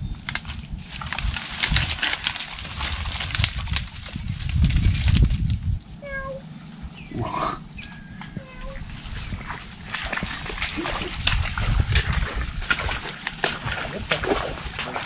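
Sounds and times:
twigs and leaves crackling: 0.2 - 5.8.

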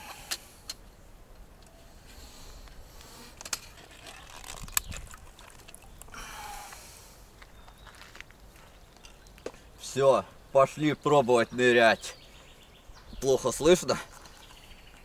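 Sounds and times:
rubber bands stretching: 3.5 - 6.2.

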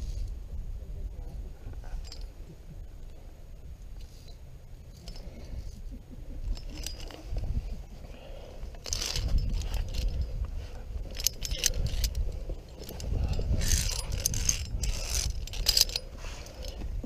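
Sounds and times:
steady low rumble: 0.0 - 17.0
carabiners clinking on steel cable: 1.8 - 2.4, 4.0 - 5.7, 6.4 - 17.0.

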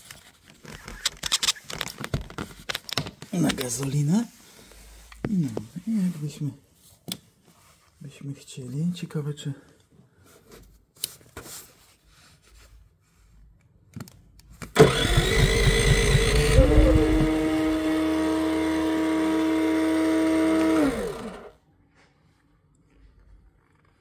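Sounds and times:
small generator engine running: 14.8 - 21.6.

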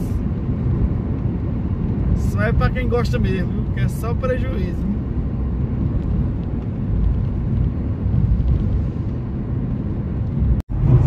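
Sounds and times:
road and engine rumble in cabin: 0.0 - 11.0.

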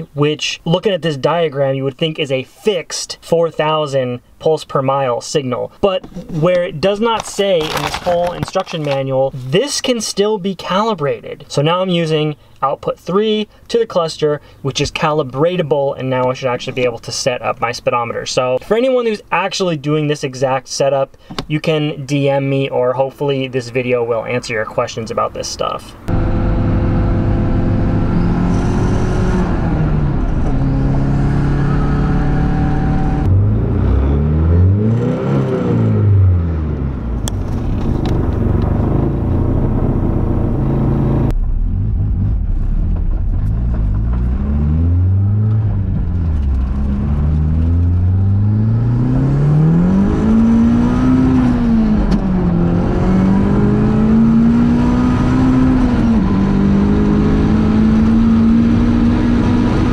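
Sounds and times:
car engine accelerating: 26.0 - 59.9.

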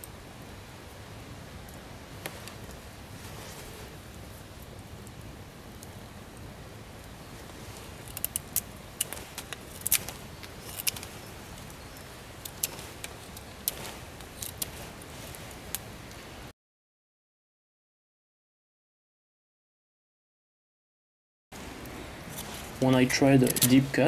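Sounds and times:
low background noise: 0.0 - 16.5, 21.6 - 24.0
knife shaving wood: 7.4 - 15.8.

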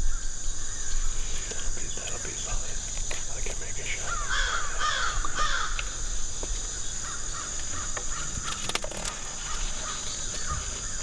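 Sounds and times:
high insect drone: 0.0 - 11.0
crows cawing: 3.7 - 11.0.

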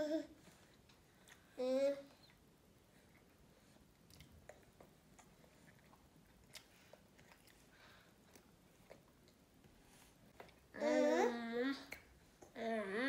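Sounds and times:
toddler chewing with mouth open: 0.4 - 10.8.

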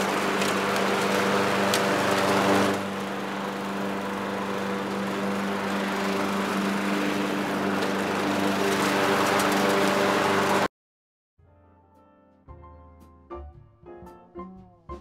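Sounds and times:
lawn mower engine running: 0.0 - 10.7.

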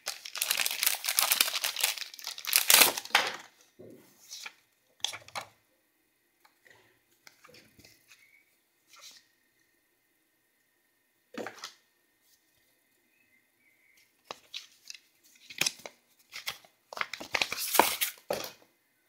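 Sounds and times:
paper and cardboard rustling: 14.3 - 18.5.

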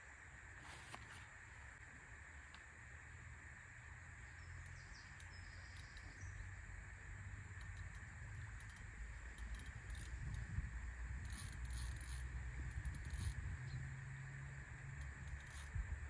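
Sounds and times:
steady hiss: 0.0 - 16.0
low uneven rumble: 0.4 - 16.0
faint bird chirps: 4.2 - 6.6.

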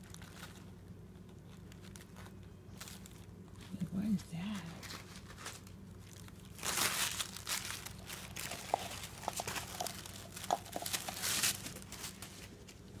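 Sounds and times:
tissue paper crinkling: 0.0 - 13.0.

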